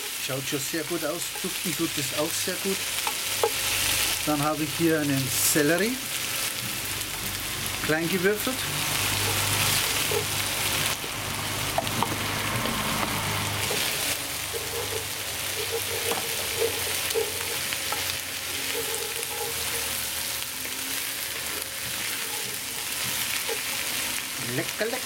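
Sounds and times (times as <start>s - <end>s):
vegetables sizzling in a pot: 0.0s - 25.0s
wooden spoon scraping and knocking: 3.0s - 4.0s, 8.4s - 20.4s, 21.2s - 24.0s.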